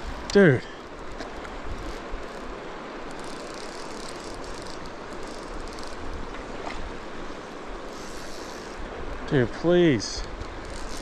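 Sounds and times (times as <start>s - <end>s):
fishing reel ratchet clicking: 1.8s - 6.1s, 10.3s - 11.0s.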